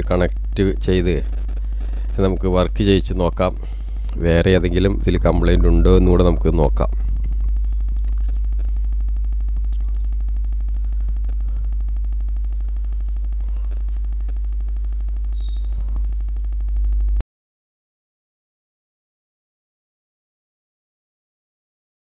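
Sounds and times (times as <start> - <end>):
electrical mains hum: 0.0 - 17.2
faint steady tone: 1.6 - 17.2
faint ticks: 7.0 - 17.0.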